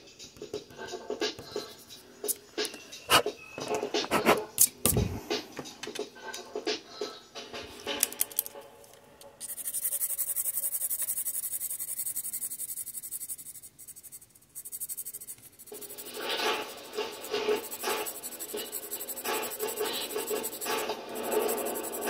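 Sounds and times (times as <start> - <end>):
pen scratching on paper: 4.0 - 4.5, 9.4 - 22.0.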